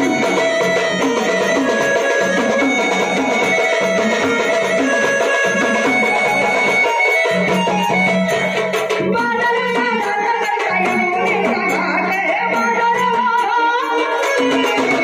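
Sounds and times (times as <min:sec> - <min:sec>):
drum steady beat: 0:00.0 - 0:15.0
keyboard melody: 0:00.0 - 0:15.0
woman singing: 0:08.9 - 0:15.0.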